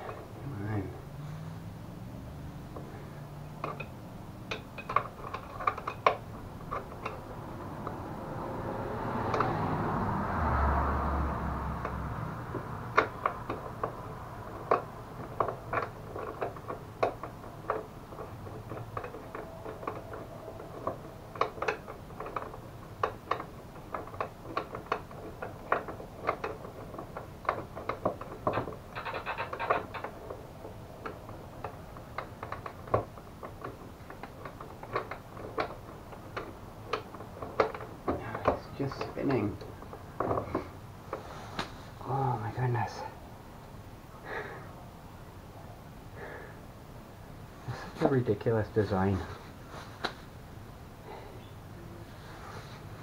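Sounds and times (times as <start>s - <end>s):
rustling: 13.0s - 42.6s, 47.4s - 53.0s.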